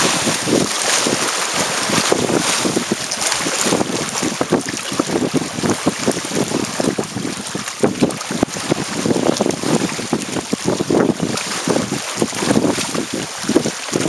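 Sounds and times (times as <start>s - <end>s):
water rushing and splashing: 0.0s - 14.0s
wind buffeting microphone: 0.0s - 14.0s.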